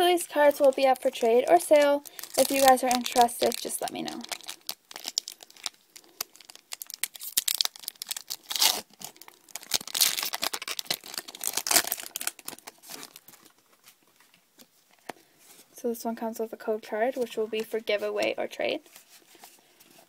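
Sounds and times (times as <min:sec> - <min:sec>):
foil wrapper crinkling and tearing: 0:00.1 - 0:14.1.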